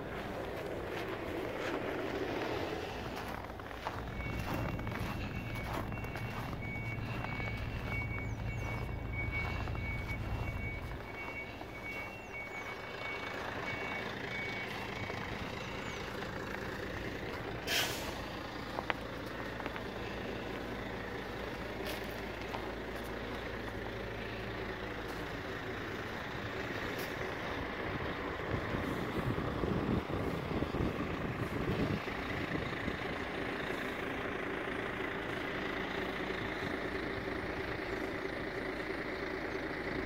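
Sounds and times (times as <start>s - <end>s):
truck engine running: 0.0s - 40.0s
truck reversing alarm beeping: 0.0s - 40.0s
air brakes hissing: 17.5s - 18.6s.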